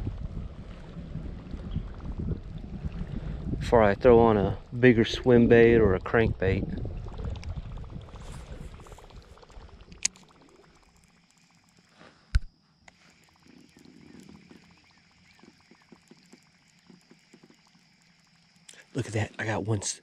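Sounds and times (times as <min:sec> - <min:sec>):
lure gurgling on water: 0:00.0 - 0:12.1, 0:12.9 - 0:19.3
fishing reel click: 0:09.9 - 0:13.7.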